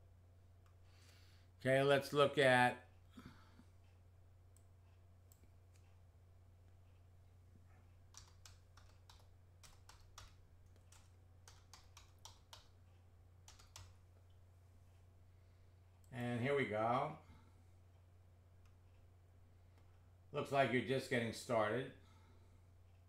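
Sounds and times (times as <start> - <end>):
low electrical hum: 0.0 - 23.0
computer keyboard typing: 8.0 - 12.8, 13.4 - 14.0.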